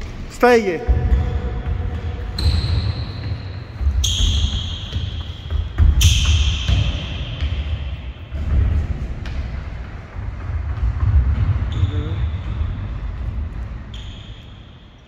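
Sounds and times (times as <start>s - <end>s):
running footsteps on hall floor: 0.0s - 15.0s
sneaker squeaks on court: 0.9s - 8.2s, 13.8s - 15.0s.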